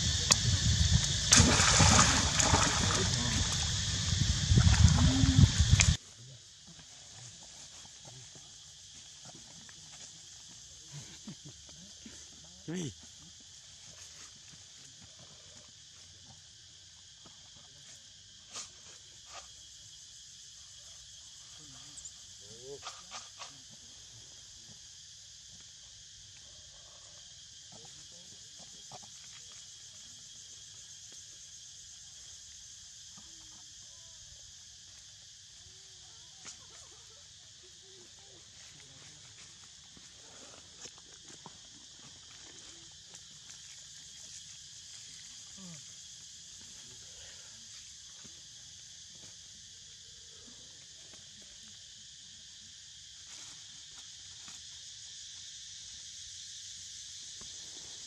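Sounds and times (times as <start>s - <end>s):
insects chorus: 0.0s - 58.0s.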